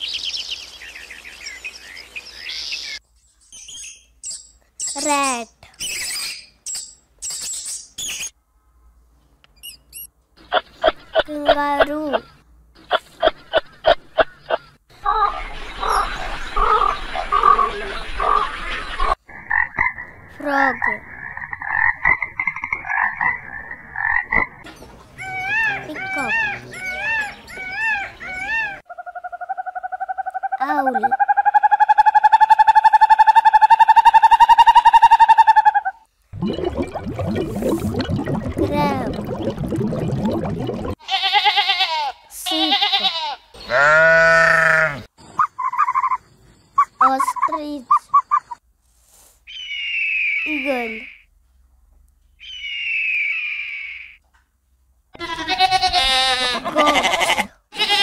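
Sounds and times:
frog croaking: 0:19.3 - 0:24.6
animal sound: 0:25.2 - 0:36.0
sheep bleating: 0:41.0 - 0:45.1, 0:55.2 - 0:58.0.

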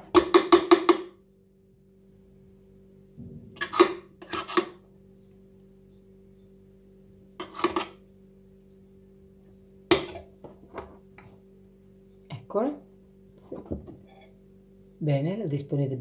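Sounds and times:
faint steady hum: 0:00.0 - 0:16.0
spoon scraping foil tray: 0:03.6 - 0:04.8, 0:07.4 - 0:08.0.

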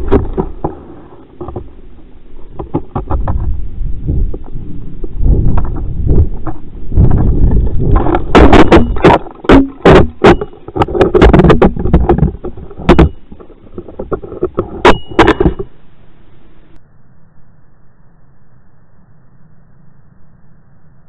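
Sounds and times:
sharp cracks and knocks: 0:00.0 - 0:01.7, 0:05.5 - 0:15.8
rough wind rush: 0:00.0 - 0:15.8.

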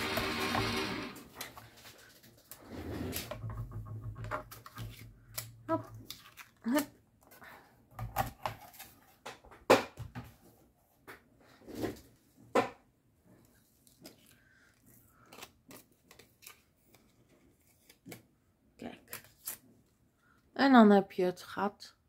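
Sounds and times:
cardstock rustling and crinkling: 0:01.4 - 0:09.4, 0:13.5 - 0:19.7.

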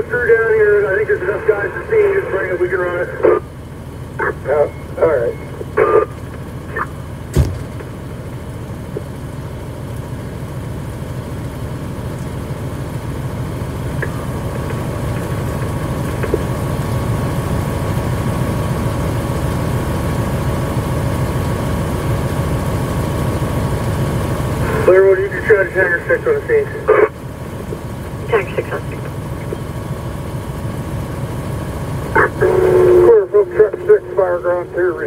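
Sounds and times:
diesel engine running: 0:00.0 - 0:35.0
faint steady whine: 0:00.0 - 0:35.0
sharp knock: 0:07.3 - 0:07.8.

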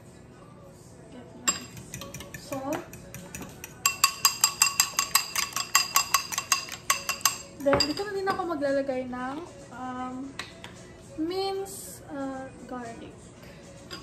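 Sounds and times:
fork clinking in metal bowl: 0:01.5 - 0:08.1.

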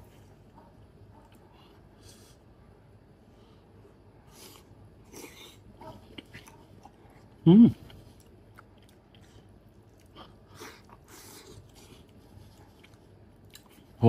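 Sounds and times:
chewing and slurping: 0:04.4 - 0:14.0
man humming: 0:07.4 - 0:07.9.

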